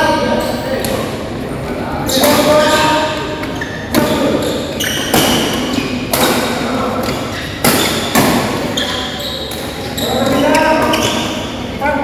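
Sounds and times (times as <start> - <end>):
badminton racket hitting shuttlecock: 3.9 - 8.8.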